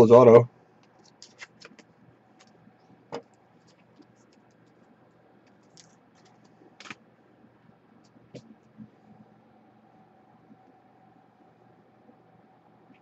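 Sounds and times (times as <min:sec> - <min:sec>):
trading cards being handled: 0:00.8 - 0:02.6, 0:05.5 - 0:07.0.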